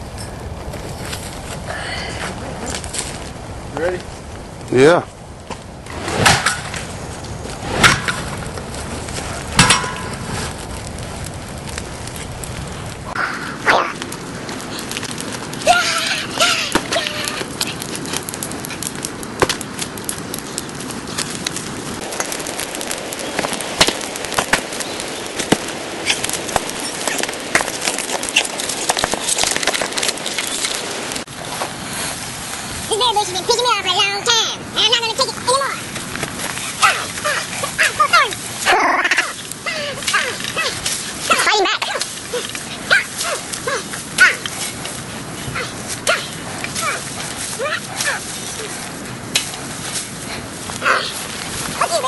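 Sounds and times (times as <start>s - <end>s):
fire crackling with pops: 0.0s - 52.0s
smashing blows on wood: 5.6s - 31.3s.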